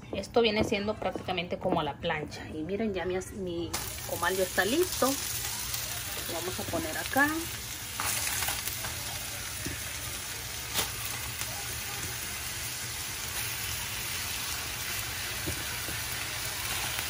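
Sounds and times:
steaks sizzling in oil: 3.8s - 17.0s.

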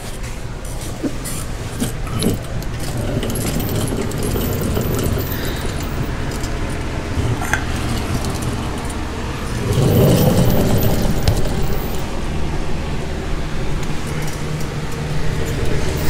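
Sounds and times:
fan running: 0.0s - 16.0s
metallic clinks and rattles: 1.2s - 12.1s
low rumble: 1.6s - 15.8s.

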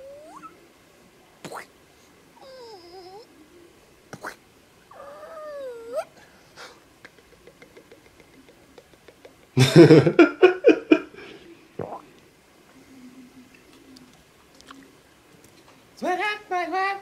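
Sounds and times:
man laughing: 6.6s - 11.2s.

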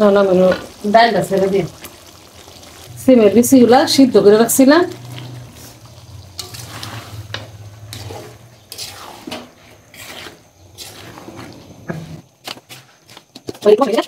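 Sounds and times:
beans tumbling into curry: 0.0s - 14.0s
spoon scraping a metal pan: 5.0s - 12.8s.

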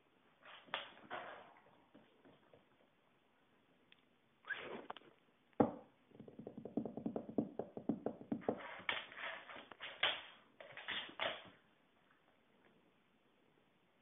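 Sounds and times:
dog claws clicking on hard floor: 6.2s - 11.6s.

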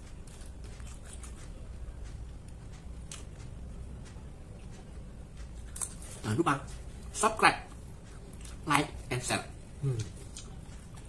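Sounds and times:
faint clicks and taps: 0.0s - 8.6s
low steady hum: 0.0s - 11.0s.

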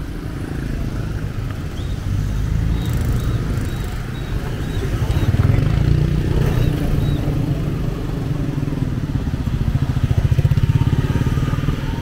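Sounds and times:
street traffic: 0.0s - 12.0s
motorbike engine running: 2.7s - 12.0s.

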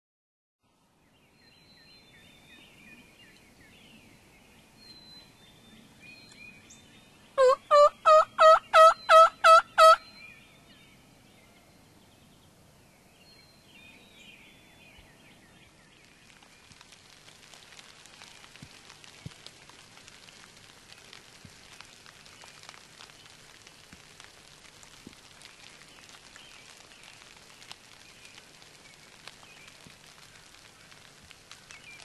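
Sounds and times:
faint songbird chirping: 0.8s - 16.9s
turkey yelps: 7.4s - 10.0s.

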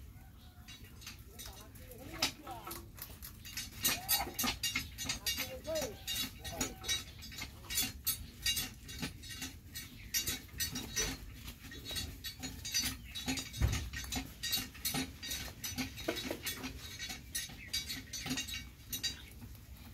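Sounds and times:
rabbits chewing greens: 0.0s - 19.9s.

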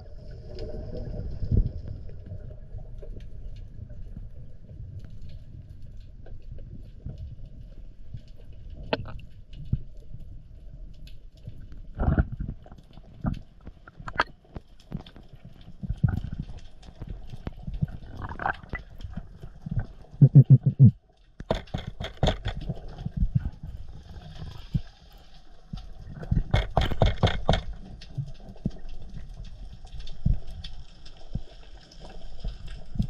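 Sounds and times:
underwater rumble of moving water: 0.0s - 33.0s
clicks and knocks: 21.4s - 22.6s, 26.3s - 27.7s.

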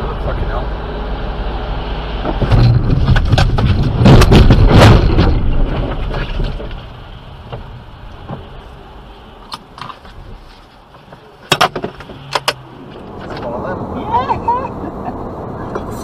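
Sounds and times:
car driving on wet road: 0.0s - 16.0s
lorry passing with rumble: 12.6s - 16.0s.

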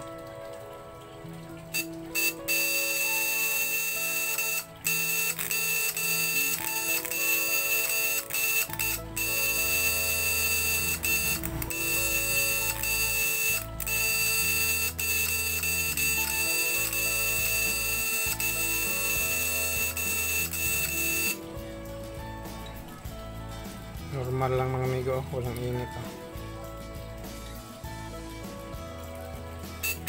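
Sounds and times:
electric buzzer buzzing: 1.7s - 21.9s, 29.7s - 30.0s.

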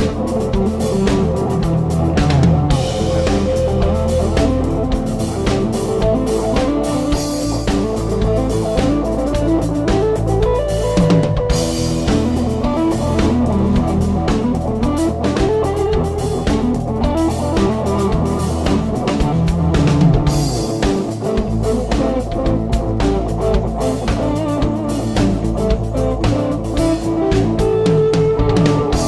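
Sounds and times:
drum-kit beat: 0.0s - 29.0s
guitar: 0.0s - 29.0s.

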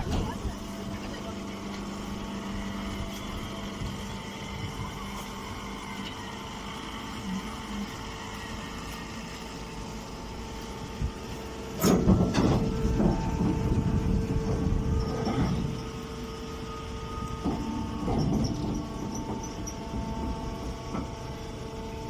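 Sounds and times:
baler mechanical hum: 0.0s - 22.0s
bale rumbling and scraping: 12.0s - 16.1s.

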